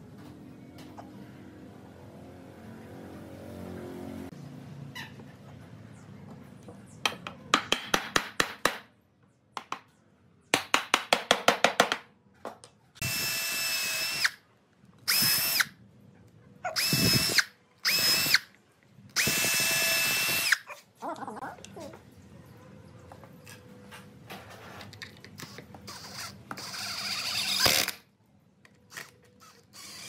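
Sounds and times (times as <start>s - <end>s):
cordless drill whining: 13.0s - 14.4s, 15.1s - 15.7s, 16.8s - 18.5s, 19.2s - 20.6s, 25.9s - 28.0s, 29.0s - 30.0s.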